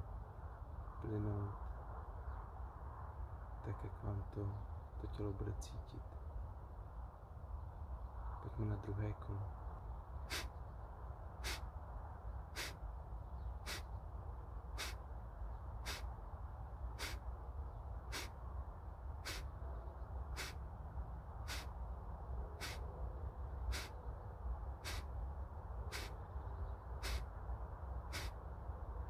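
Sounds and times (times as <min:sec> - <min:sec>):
forceful nasal exhalations: 0:10.3 - 0:10.5, 0:11.4 - 0:11.6, 0:12.6 - 0:12.8, 0:13.7 - 0:13.9, 0:14.8 - 0:15.0, 0:15.8 - 0:16.1, 0:17.0 - 0:17.2, 0:18.1 - 0:18.3, 0:19.2 - 0:19.5, 0:20.4 - 0:20.6, 0:21.5 - 0:21.7, 0:22.6 - 0:22.8, 0:23.7 - 0:23.9, 0:24.8 - 0:25.1, 0:25.9 - 0:26.2, 0:27.0 - 0:27.2, 0:28.1 - 0:28.4.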